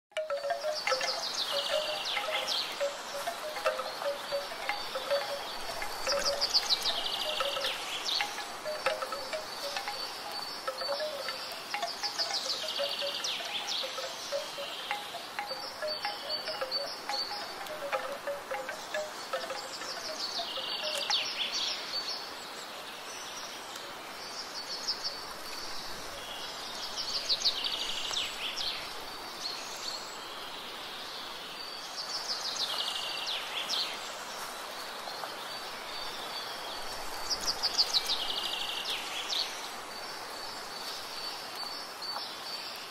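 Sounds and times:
bamboo wind chimes knocking: 0.1s - 21.5s
descending bird trill: 0.2s - 21.3s
high insect drone: 0.2s - 21.4s.

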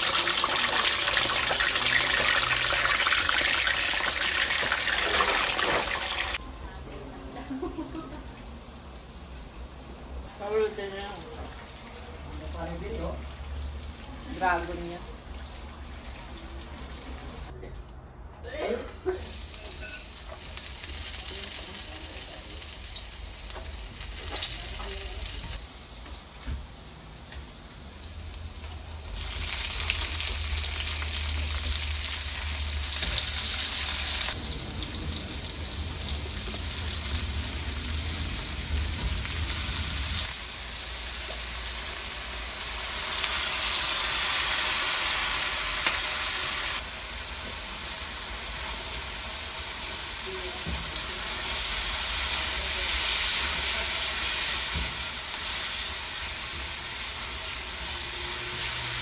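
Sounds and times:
vegetables sizzling in hot oil: 0.0s - 6.4s, 19.1s - 59.0s.

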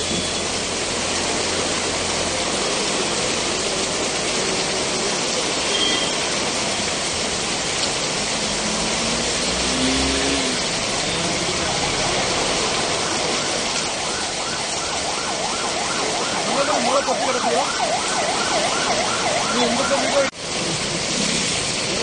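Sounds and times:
heavy rain pouring on a street: 0.0s - 22.0s
passing traffic hum: 6.3s - 21.9s.

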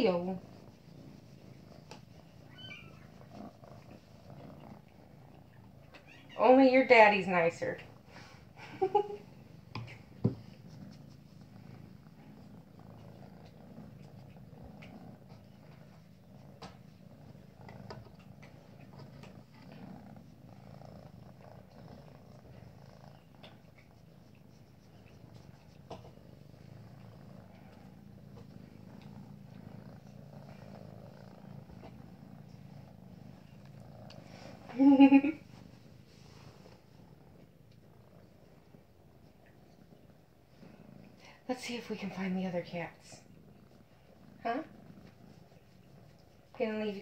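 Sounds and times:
cat purring: 0.0s - 47.0s.

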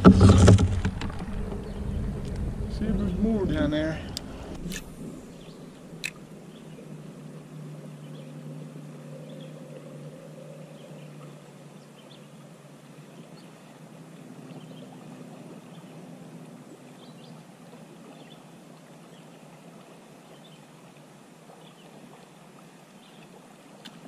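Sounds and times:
river water rushing and lapping: 0.0s - 24.0s
small ticks and splashes: 11.0s - 24.0s.

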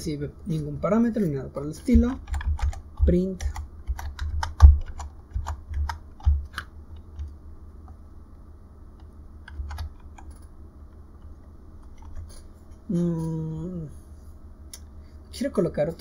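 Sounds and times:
keyboard keystroke clicks: 1.9s - 7.4s.

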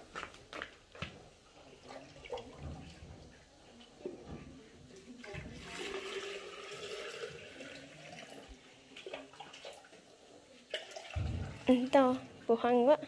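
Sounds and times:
water pouring into plastic jug: 1.4s - 12.6s
dipper knocking: 11.1s - 11.9s.

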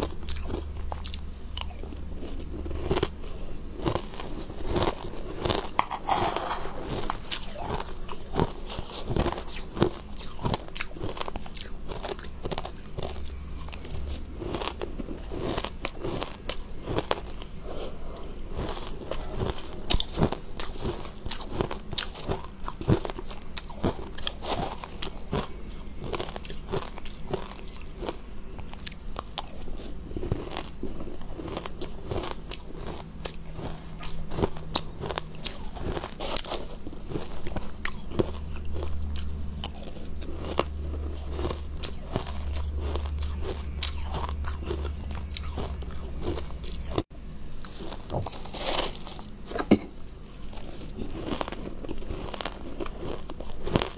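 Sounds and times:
crushed ice being chewed: 0.0s - 53.9s.

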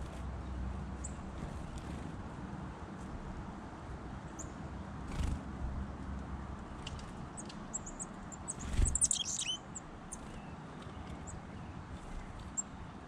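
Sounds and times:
songbirds chirping: 4.1s - 13.0s.

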